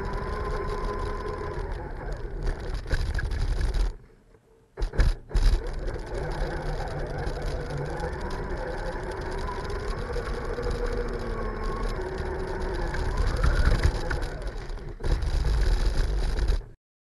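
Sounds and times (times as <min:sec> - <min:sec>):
electric motor whining under load: 0:00.0 - 0:03.0, 0:05.4 - 0:16.7
low rumble: 0:04.8 - 0:16.8.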